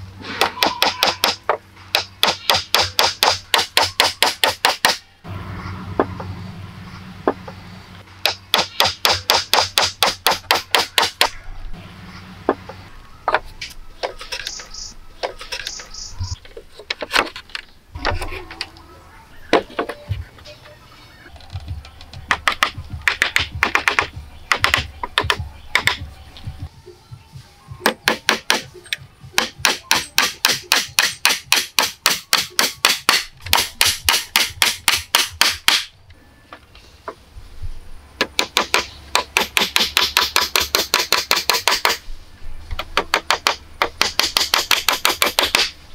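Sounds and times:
hatchet chopping wood: 0:00.4 - 0:05.0, 0:08.2 - 0:11.4, 0:22.2 - 0:26.1, 0:27.8 - 0:28.7, 0:29.4 - 0:35.9, 0:38.2 - 0:42.0, 0:42.8 - 0:45.7.

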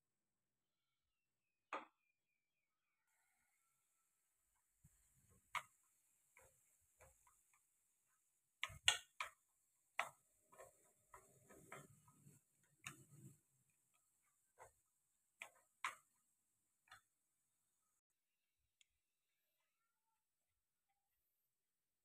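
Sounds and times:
chopsticks tapping on metal pan: 0:08.6 - 0:13.4, 0:15.4 - 0:16.2.

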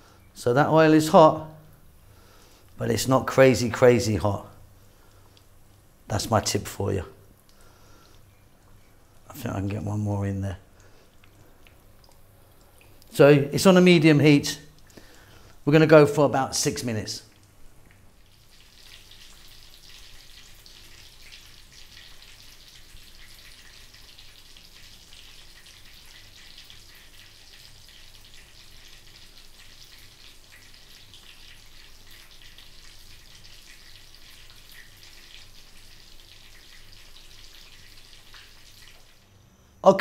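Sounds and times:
oil sizzling in frying: 0:10.7 - 0:13.2, 0:16.7 - 0:39.4.

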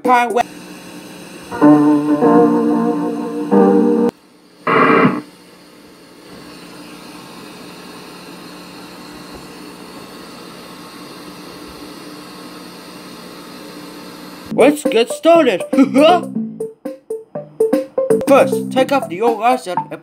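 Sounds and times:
electric piano music: 0:01.5 - 0:04.1, 0:14.5 - 0:20.0
tape static hiss: 0:01.5 - 0:04.1, 0:04.7 - 0:05.2
short loud pitched tone: 0:04.7 - 0:05.2.

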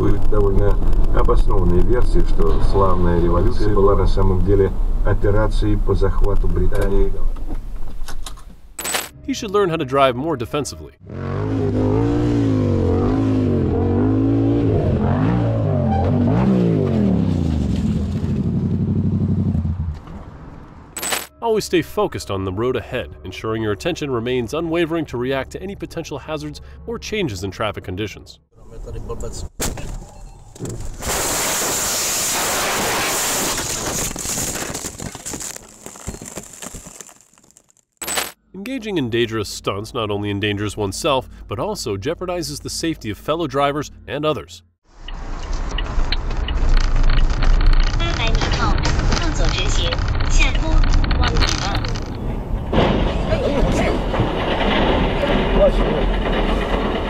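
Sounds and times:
crackles: 0:00.0 - 0:09.1, 0:29.6 - 0:38.4, 0:44.9 - 0:57.0
motorcycle engine revving: 0:11.0 - 0:20.1
car crash rushing and scraping: 0:14.6 - 0:20.3, 0:30.6 - 0:37.6, 0:52.0 - 0:57.0.

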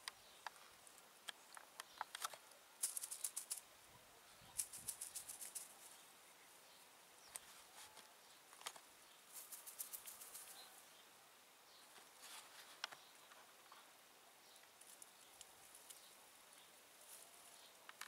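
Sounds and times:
small clicks: 0:01.2 - 0:03.6.

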